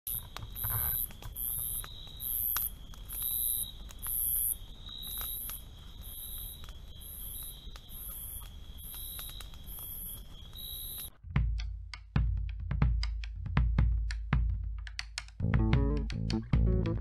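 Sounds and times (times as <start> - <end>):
high insect whine: 0.1 - 11.1
insects trilling: 0.1 - 11.1
campfire popping and crackling: 0.1 - 11.2.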